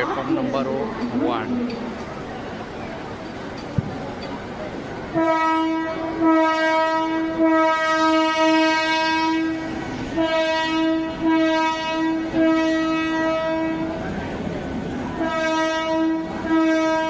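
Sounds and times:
train horn blasts: 0:05.1 - 0:14.0, 0:15.1 - 0:17.0.

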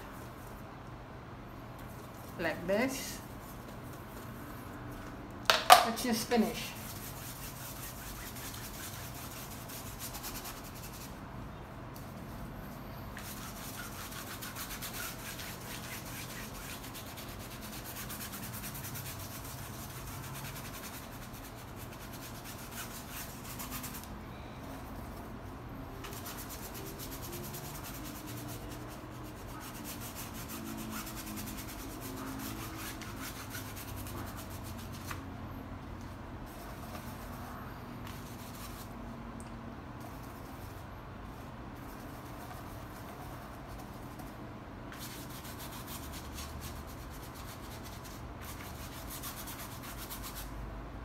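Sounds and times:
paintbrush scrubbing canvas: 0:05.9 - 0:11.2, 0:13.1 - 0:24.1, 0:26.0 - 0:35.3, 0:36.5 - 0:39.0, 0:40.0 - 0:44.3, 0:44.9 - 0:50.5.

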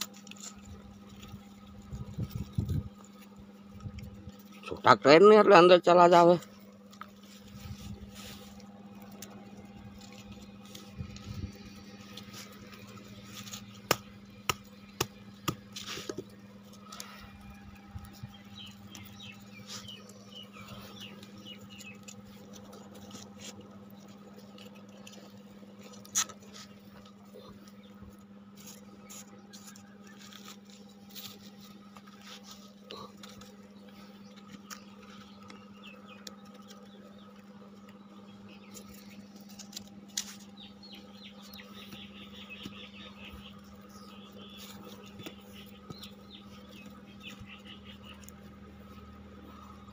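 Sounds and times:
dried dung scratching and crumbling: 0:00.0 - 0:49.9
steady low hum: 0:00.0 - 0:49.9
dried dung cracking: 0:06.6 - 0:27.8.

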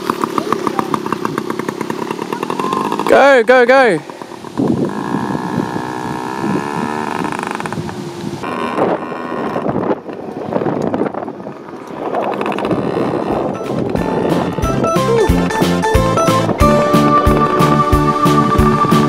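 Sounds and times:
small motorbike engine whining: 0:00.0 - 0:19.0
wind buffeting microphone: 0:04.3 - 0:19.0.

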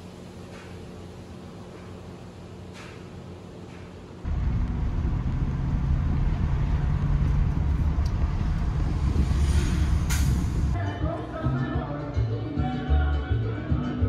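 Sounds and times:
road noise: 0:03.6 - 0:10.8
truck engine rumble: 0:04.2 - 0:10.8.

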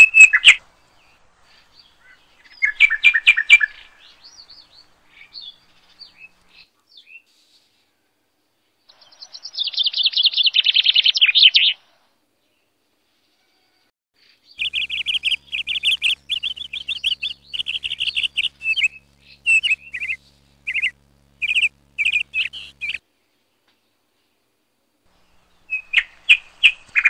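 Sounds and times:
small birds chirping: 0:00.0 - 0:07.6, 0:14.2 - 0:23.0, 0:25.1 - 0:27.0
faint low hum: 0:14.6 - 0:23.5, 0:25.0 - 0:27.0.

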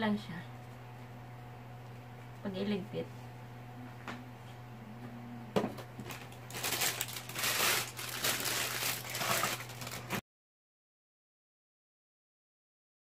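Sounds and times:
packaging crinkling: 0:06.0 - 0:10.2.

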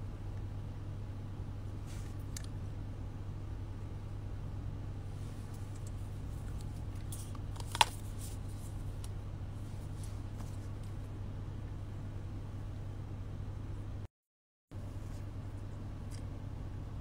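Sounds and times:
steady low hum: 0:00.0 - 0:14.1, 0:14.7 - 0:17.0
handling rustles and ticks: 0:05.3 - 0:11.0.

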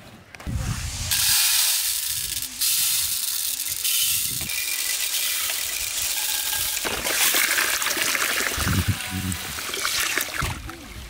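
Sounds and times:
lentils pouring into metal bowl: 0:00.9 - 0:08.4.

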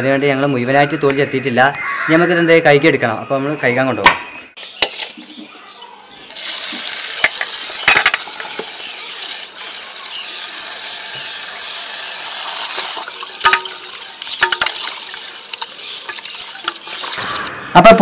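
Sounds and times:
tap water pouring into bowl: 0:06.4 - 0:17.4
roots knocking metal bowl: 0:06.8 - 0:08.8, 0:12.8 - 0:17.2.

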